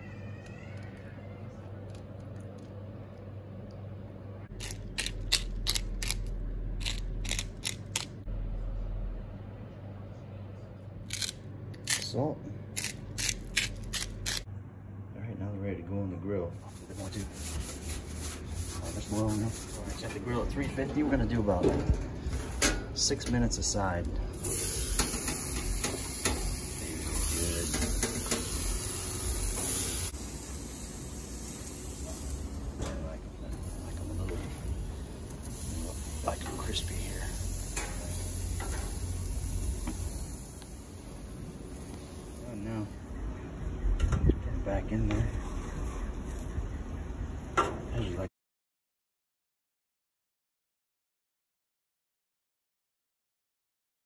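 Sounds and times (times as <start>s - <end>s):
pepper mill grinding: 4.6s - 8.2s, 11.1s - 12.2s, 12.8s - 14.4s
gas grill hissing: 21.3s - 43.1s
eggplant slices sizzling: 24.4s - 32.7s, 35.3s - 42.0s.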